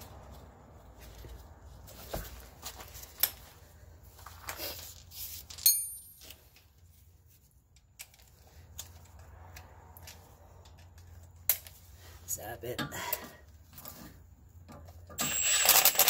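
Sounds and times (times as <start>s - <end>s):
ringing metallic clink: 5.6s - 6.3s.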